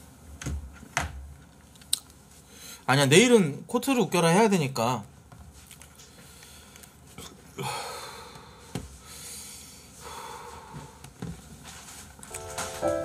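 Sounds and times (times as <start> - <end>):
man huffing breaths: 7.5 - 11.0.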